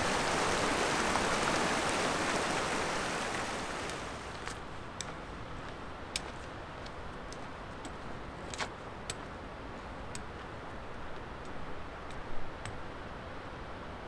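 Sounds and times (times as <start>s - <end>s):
background hiss: 0.0s - 14.0s
trekking pole tips clicking on rock: 10.1s - 10.4s.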